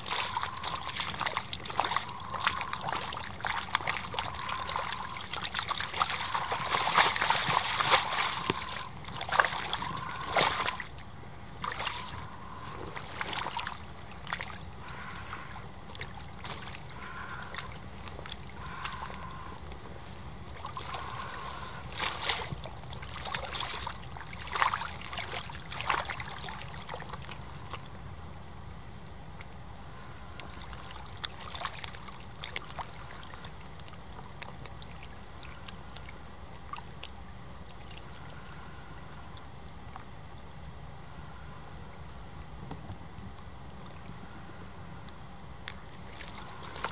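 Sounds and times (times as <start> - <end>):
boots splashing in mud: 0.0 - 10.9, 11.6 - 12.1, 12.9 - 15.1, 16.4 - 17.2.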